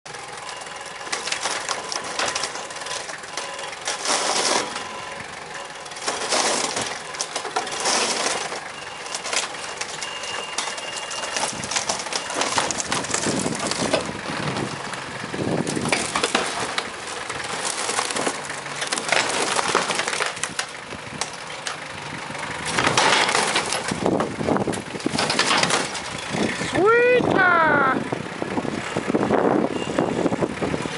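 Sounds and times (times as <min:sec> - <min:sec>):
tractor engine running: 0:00.0 - 0:30.9
wood cracking and splintering: 0:00.1 - 0:26.8
metal roofing sheets crumpling: 0:01.0 - 0:04.9, 0:06.0 - 0:14.1, 0:15.7 - 0:20.8, 0:22.7 - 0:24.2, 0:25.0 - 0:26.2.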